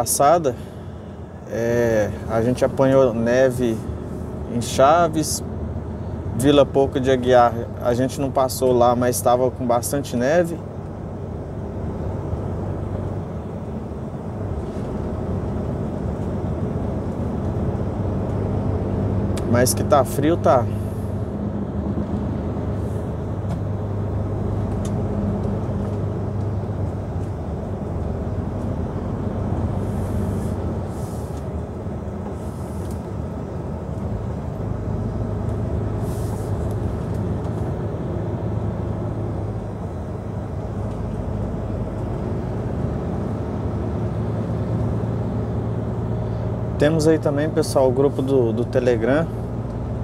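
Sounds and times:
road noise: 0:00.0 - 0:50.0
truck diesel engine running: 0:00.0 - 0:50.0
faint short hisses: 0:29.8 - 0:31.4, 0:36.0 - 0:36.7.

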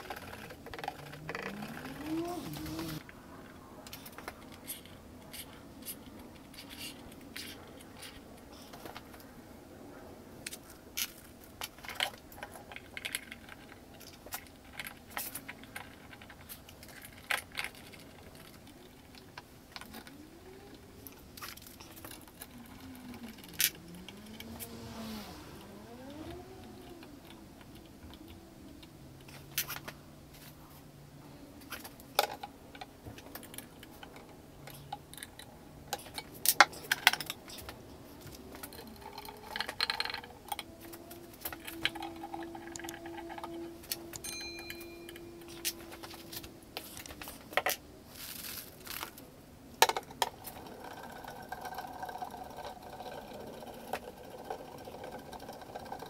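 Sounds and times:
metallic clicks and clinks: 0:38.6 - 0:47.8.

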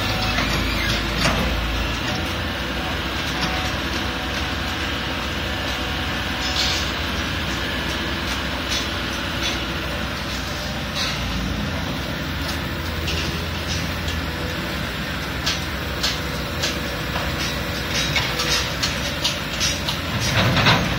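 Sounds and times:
excavator diesel engine running: 0:00.0 - 0:20.9
excavator bucket clanking: 0:15.3 - 0:20.9.

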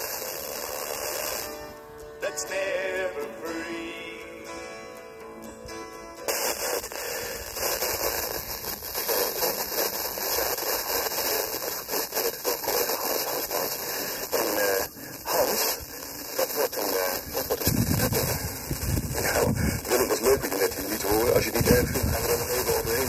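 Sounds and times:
radio static hiss: 0:00.0 - 0:04.4, 0:06.2 - 0:23.0
faint radio voice: 0:06.3 - 0:23.0.

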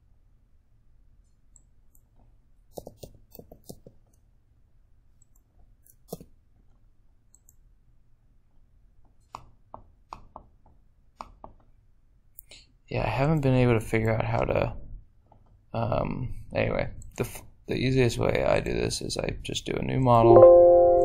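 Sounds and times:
mouse clicks: 0:07.3 - 0:07.6.

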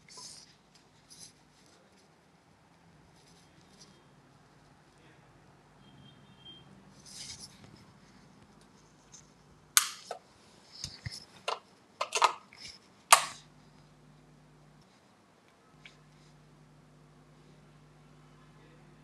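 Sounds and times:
sharp clicks and knocks: 0:10.8 - 0:12.5, 0:13.1 - 0:13.4.

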